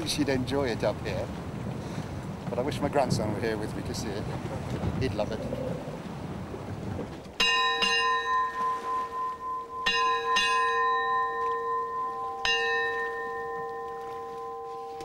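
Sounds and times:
ship's bell ringing: 0:07.4 - 0:15.0.

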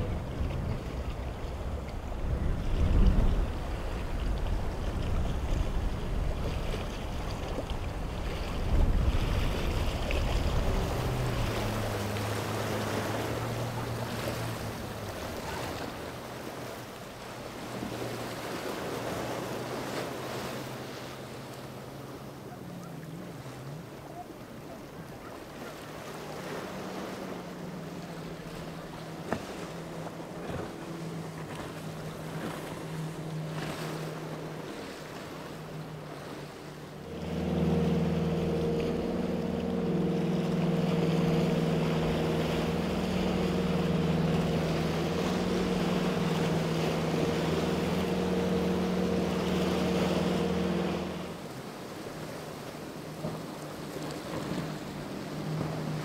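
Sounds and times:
wind on microphone: 0:00.0 - 0:16.3
larger boat engines deep: 0:00.0 - 0:56.0
motorboat engines running: 0:00.0 - 0:56.0.

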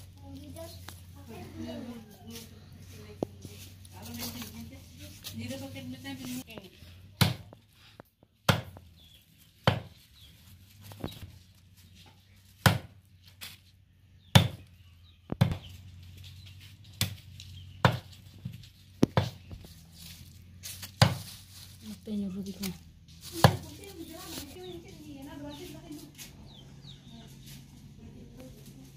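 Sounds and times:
knife chopping on wooden block: 0:08.5 - 0:08.8.

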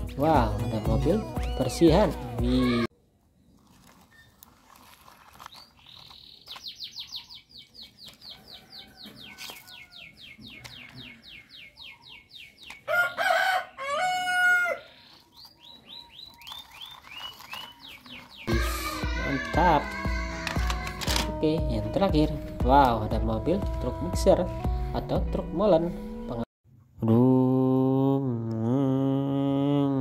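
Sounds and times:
bird chirping: 0:05.0 - 0:13.2, 0:14.8 - 0:18.7
rooster crowing: 0:08.3 - 0:10.2, 0:12.9 - 0:15.0.

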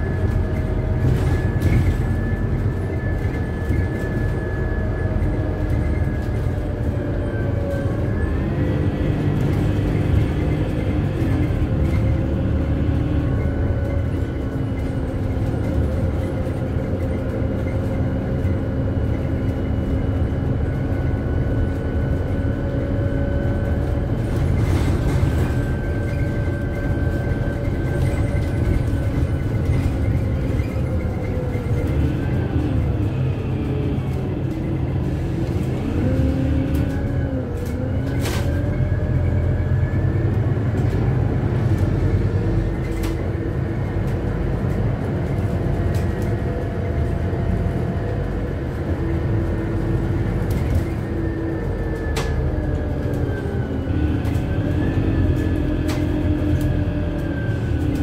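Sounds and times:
bus engine rumble: 0:00.0 - 0:58.0
drivetrain whine: 0:00.0 - 0:58.0.

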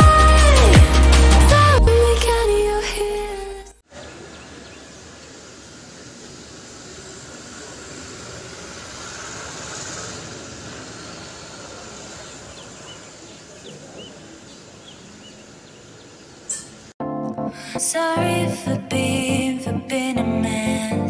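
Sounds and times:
outdoor background hiss: 0:03.8 - 0:17.0
faint bird chirps: 0:10.6 - 0:16.9.

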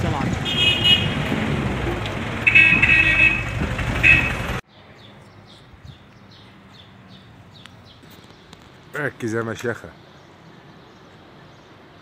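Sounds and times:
street traffic rumbling: 0:00.0 - 0:12.0
small birds chirping: 0:04.7 - 0:12.0.

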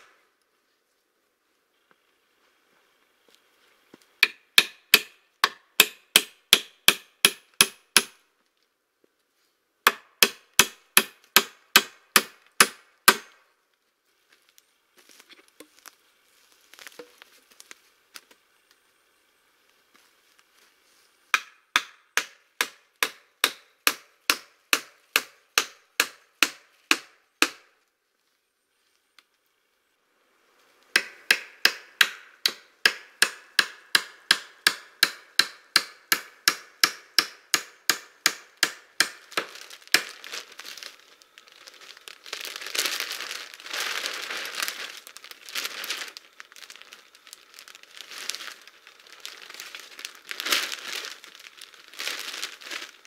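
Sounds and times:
hammering on wooden poles: 0:04.2 - 0:08.2, 0:09.9 - 0:13.4, 0:21.3 - 0:27.8, 0:30.9 - 0:40.1
plastic sheeting crinkling: 0:13.8 - 0:18.5, 0:39.2 - 0:53.0.

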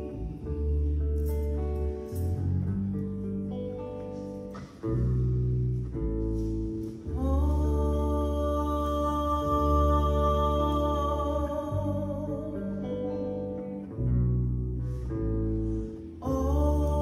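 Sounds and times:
acoustic guitar: 0:00.0 - 0:17.0
bass guitar: 0:00.0 - 0:17.0
woman singing: 0:07.0 - 0:13.6, 0:16.2 - 0:17.0.

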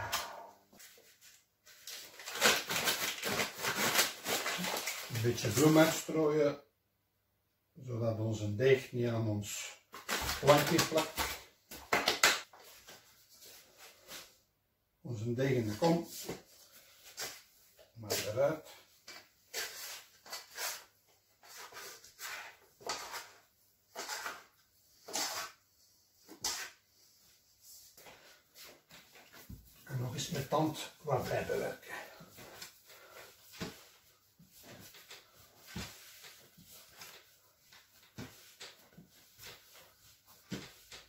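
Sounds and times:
dough scraping and rubbing: 0:19.5 - 0:41.0.

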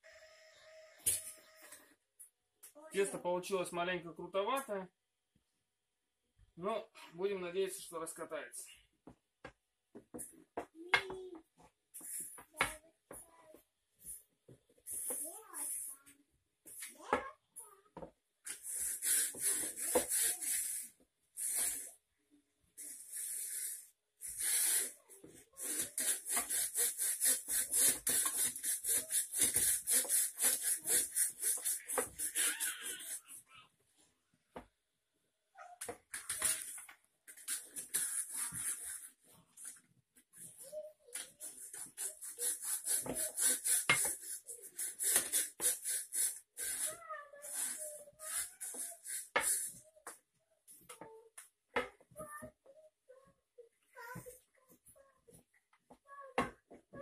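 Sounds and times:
rolling pin rolling dough: 0:41.2 - 0:45.8.

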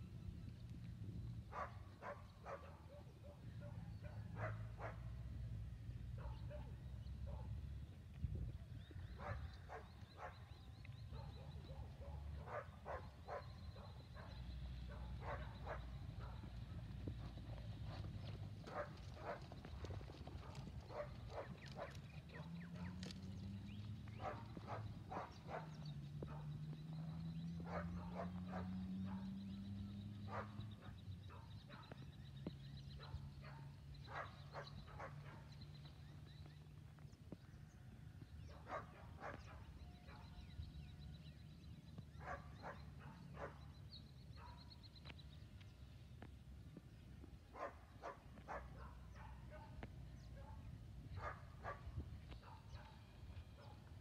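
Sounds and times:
faint dog barking: 0:01.5 - 0:05.1, 0:06.2 - 0:07.6, 0:09.2 - 0:10.4, 0:11.1 - 0:16.5, 0:24.2 - 0:26.5, 0:27.6 - 0:29.4, 0:30.3 - 0:32.0, 0:33.0 - 0:35.6, 0:38.5 - 0:40.5, 0:42.2 - 0:43.7, 0:47.5 - 0:53.9.

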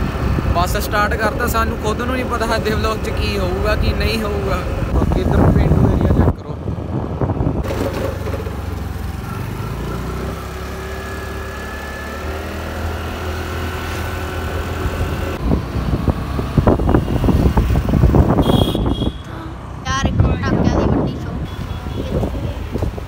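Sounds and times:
wind buffeting microphone: 0:00.0 - 0:09.5, 0:14.2 - 0:23.0
motor scooter running: 0:06.8 - 0:23.0.

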